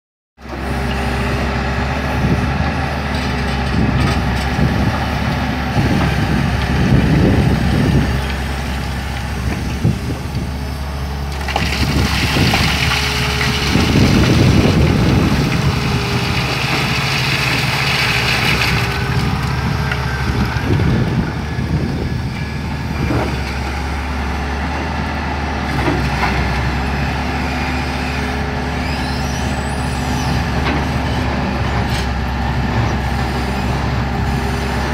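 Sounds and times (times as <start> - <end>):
diesel engine under load: 0.4 - 34.9
rock rumbling: 11.2 - 23.7
bucket scraping rock: 11.3 - 21.0
rock spilling with hiss: 11.4 - 19.1.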